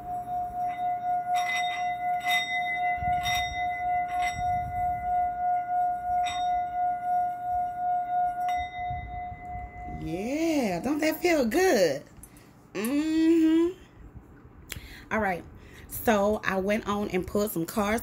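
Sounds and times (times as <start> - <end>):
singing bowl ringing: 0.0 - 11.6.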